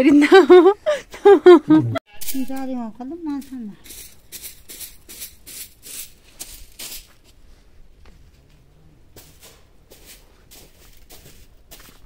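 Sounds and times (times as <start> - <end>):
footsteps on gravel: 9.2 - 12.0.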